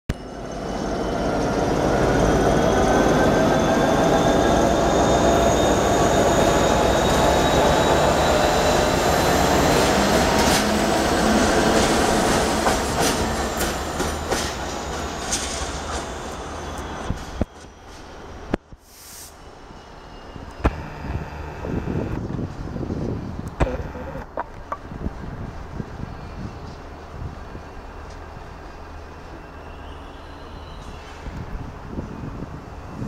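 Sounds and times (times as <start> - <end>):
diesel locomotive engine under load: 0.5 - 18.7, 19.5 - 29.6
rising whine: 20.5 - 22.4, 23.6 - 24.3.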